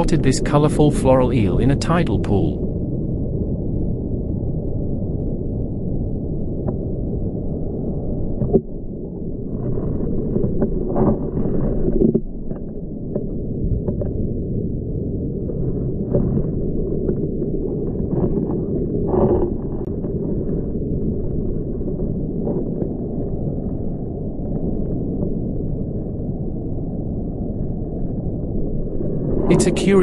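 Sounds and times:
muffled underwater water rush: 0.0 - 30.0
small underwater clicks: 7.6 - 8.7, 9.7 - 14.3.

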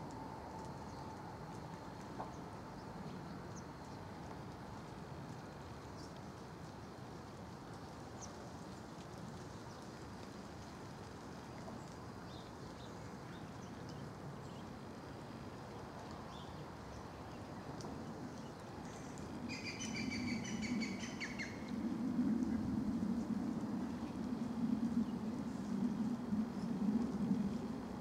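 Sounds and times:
bird trilling song: 19.5 - 21.6.

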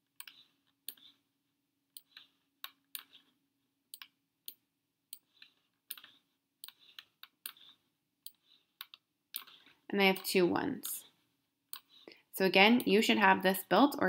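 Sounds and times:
computer mouse clicks: 1.9 - 3.2, 3.9 - 10.3.

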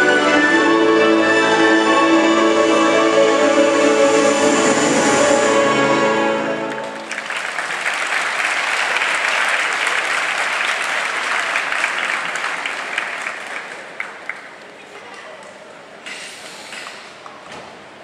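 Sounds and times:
music with held notes: 0.0 - 7.1
crowd applauding: 6.6 - 15.2.

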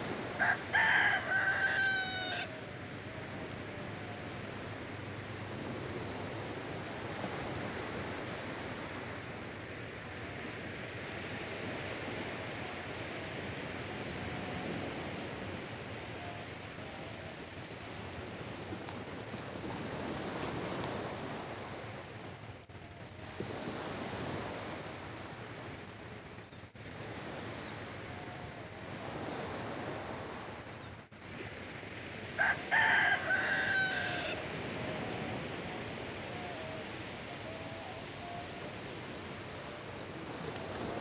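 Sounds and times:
bird calling: 0.0 - 8.0, 12.2 - 19.4, 27.3 - 29.8, 30.7 - 41.0
small waves washing on shore: 0.0 - 41.0.

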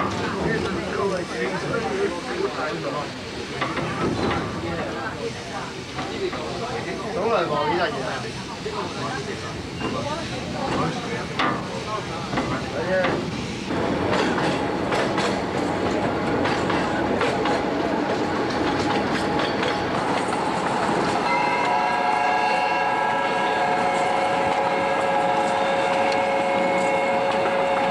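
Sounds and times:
train wheels clattering on rails: 0.0 - 7.0, 9.1 - 27.9
steam locomotive whistle: 21.2 - 27.9.

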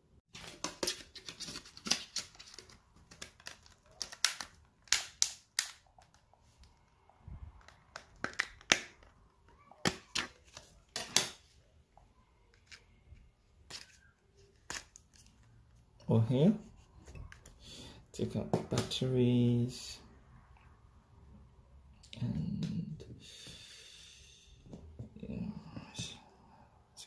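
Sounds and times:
plastic phone cover snapping: 0.4 - 6.2, 7.6 - 9.1.

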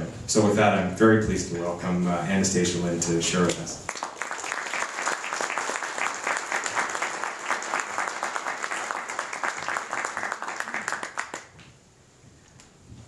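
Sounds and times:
audience applauding: 3.9 - 11.6.

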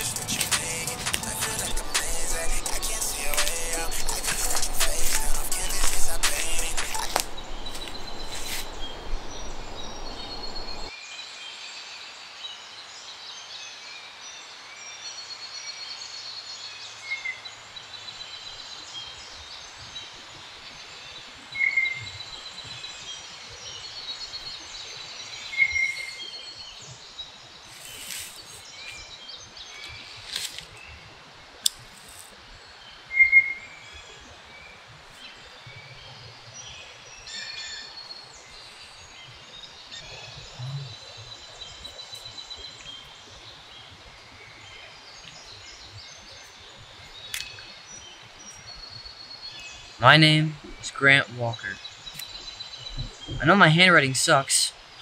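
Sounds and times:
background music: 0.0 - 7.9
small birds chirping: 0.0 - 10.9, 15.1 - 55.0
soft outdoor hiss: 0.0 - 55.0.

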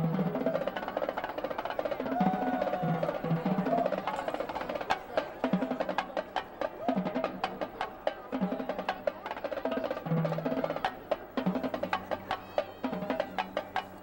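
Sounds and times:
marching drumline: 0.0 - 14.0.

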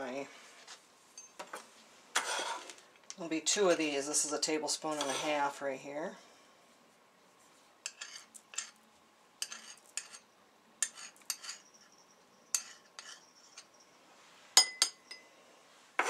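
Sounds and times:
metal spoons scraping and clinking: 3.7 - 5.5, 7.8 - 8.8, 9.4 - 13.8.

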